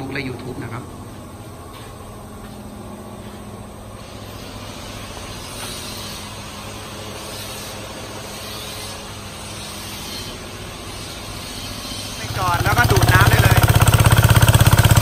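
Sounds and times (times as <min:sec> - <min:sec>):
small engine humming: 0:12.1 - 0:15.0.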